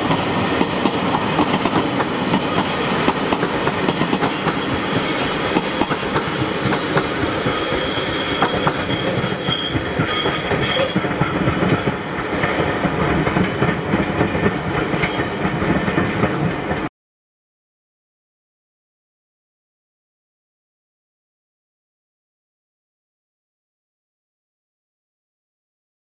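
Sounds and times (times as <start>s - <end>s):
train wheels clicking over rail joints: 0.0s - 16.9s.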